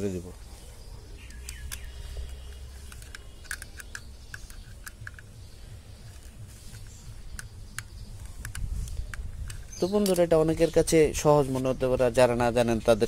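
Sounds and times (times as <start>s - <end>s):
screwdriver clicking on plastic: 1.3s - 5.3s, 6.1s - 10.3s.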